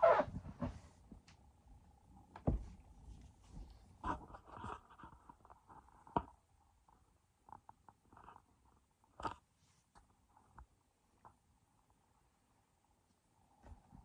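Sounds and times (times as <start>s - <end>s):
vinyl toy squeaks and rubs: 0.0s - 0.4s.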